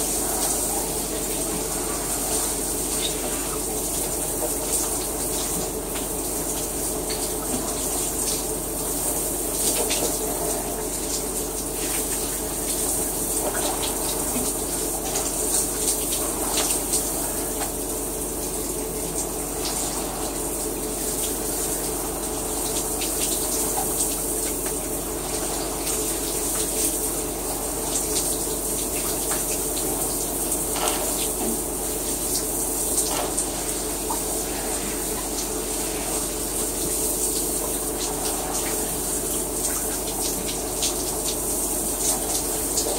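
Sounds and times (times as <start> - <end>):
shower spray running: 0.0 - 42.9.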